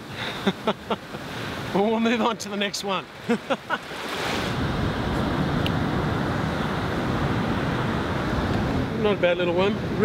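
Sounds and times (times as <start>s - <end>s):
surf washing over sand: 0.0s - 10.0s
wind buffeting microphone: 4.2s - 10.0s.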